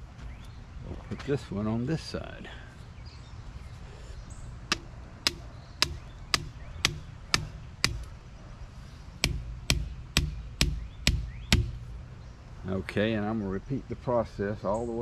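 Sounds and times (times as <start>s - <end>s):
sledgehammer striking a stake: 4.7s - 8.1s, 9.2s - 11.9s.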